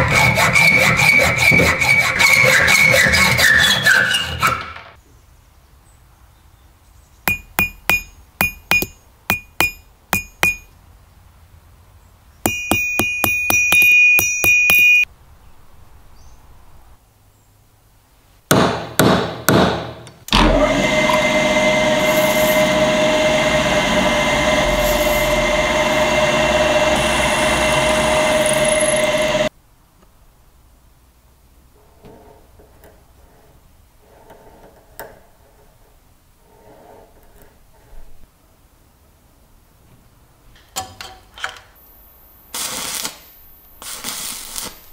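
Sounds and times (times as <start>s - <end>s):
hammer on pin punch: 7.3s - 10.7s, 12.5s - 14.9s, 18.5s - 20.0s
hammer striking steel on anvil: 7.3s - 10.7s, 12.5s - 15.0s
drill press boring steel: 20.3s - 29.5s.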